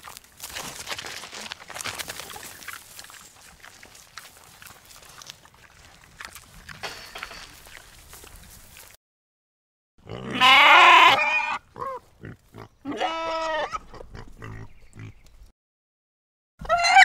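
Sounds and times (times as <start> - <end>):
animal harsh cry: 10.0 - 12.0, 12.9 - 13.8, 16.6 - 17.0.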